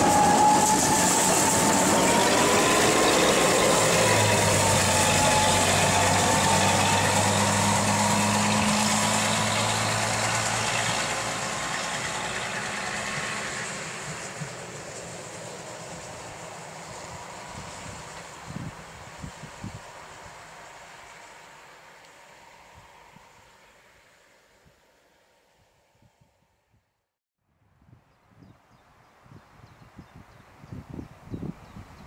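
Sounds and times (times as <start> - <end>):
diesel locomotive engine running: 0.0 - 23.6.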